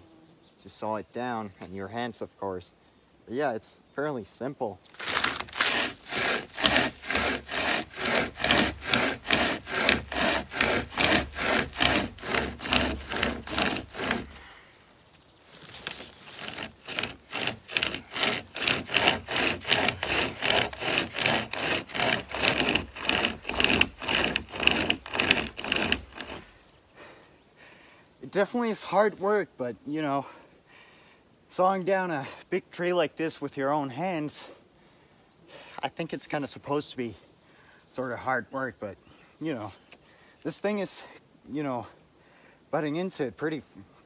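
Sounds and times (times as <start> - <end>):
hand chainsaw sawing wood: 4.9 - 14.6, 15.6 - 26.6.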